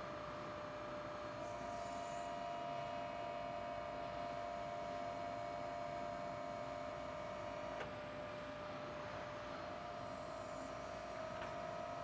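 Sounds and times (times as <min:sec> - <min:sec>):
hydraulic system whine: 0:01.3 - 0:02.8, 0:09.8 - 0:12.0.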